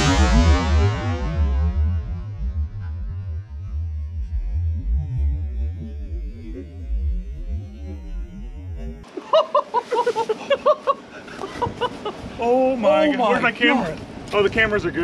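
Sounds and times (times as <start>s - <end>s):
slowed explosion low rumble: 0.0s - 9.1s.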